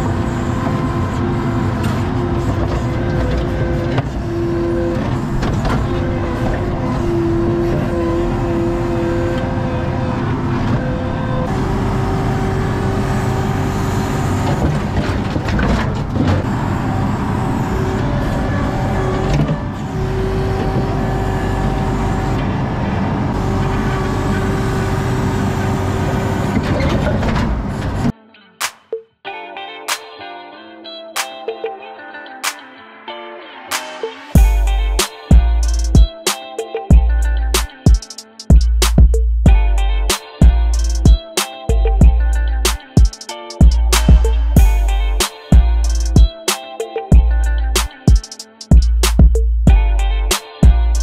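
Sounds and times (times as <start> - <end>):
track loader engine with whine: 0.0 - 28.2, 34.4 - 36.1, 38.5 - 42.8, 43.6 - 46.3.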